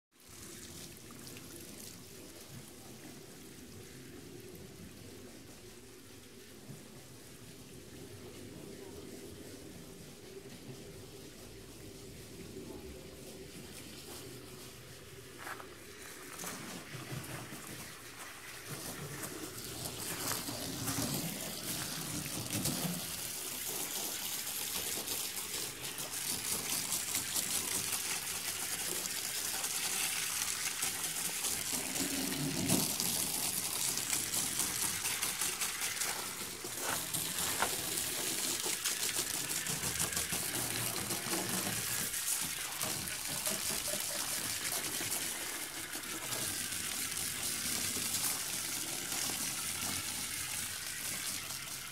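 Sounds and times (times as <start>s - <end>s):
water splashing and running off: 0.1s - 51.9s
hose spraying water: 0.2s - 51.9s.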